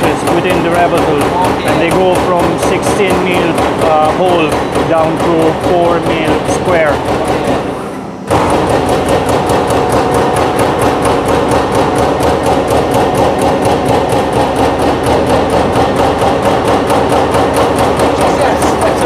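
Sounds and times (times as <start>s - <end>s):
punch press punching steel sheet: 0.0s - 19.0s.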